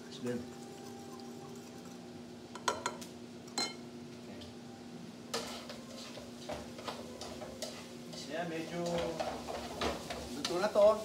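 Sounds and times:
wire whisk clinking on ceramic bowl: 3.6s - 3.8s.

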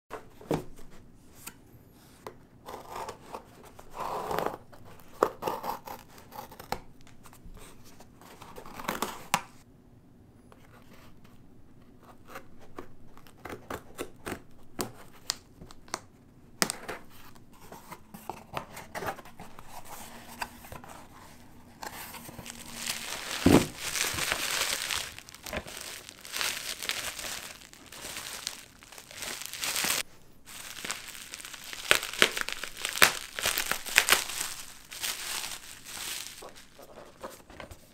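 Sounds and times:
bubble wrap crinkling: 19.4s - 37.7s
packing tape being slit and torn: 30.6s - 36.5s.

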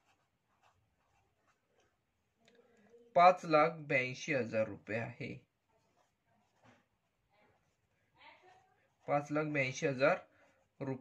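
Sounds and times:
pen scratching on paper: 0.0s - 2.3s, 5.0s - 11.0s.

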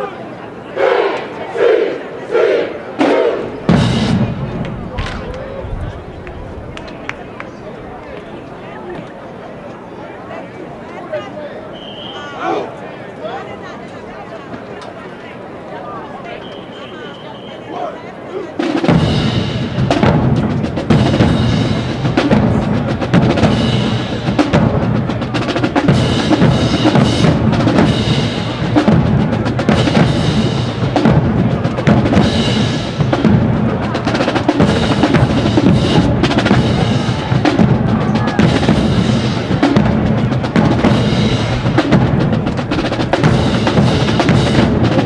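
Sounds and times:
snare drums: 3.0s - 8.4s, 18.6s - 45.0s
cymbals: 18.6s - 45.0s
bass drums: 18.9s - 45.0s.

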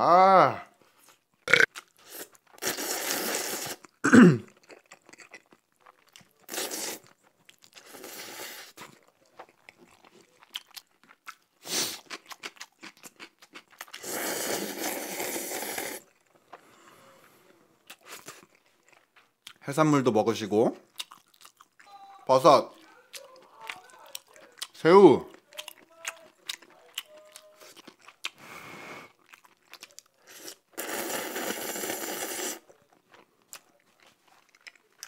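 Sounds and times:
noodles slurped: 1.8s - 4.0s, 6.4s - 9.0s, 13.6s - 16.2s, 29.1s - 32.8s
wet chewing and smacking: 3.8s - 8.0s, 8.7s - 14.0s, 17.8s - 19.6s, 20.8s - 22.0s, 22.7s - 28.4s, 29.1s - 31.0s, 32.6s - 35.0s.

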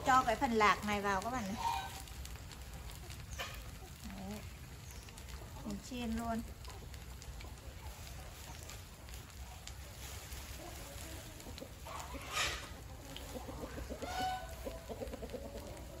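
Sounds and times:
chickens clucking: 0.0s - 16.0s
loud hen call: 14.0s - 14.8s.

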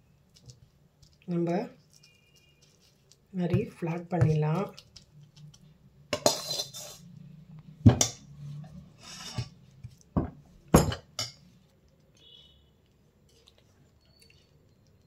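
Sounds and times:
spoon scraping a steel plate: 6.2s - 7.1s, 8.0s - 9.6s.

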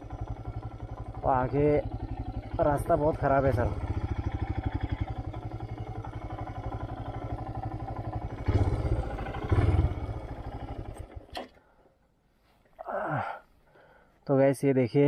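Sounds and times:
motorcycle engine running: 0.0s - 11.5s.

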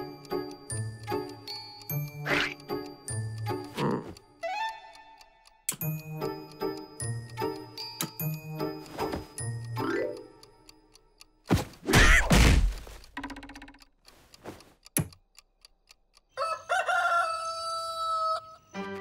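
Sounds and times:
click: 5.4s - 8.3s
cartoon rooster crow: 16.4s - 18.6s.

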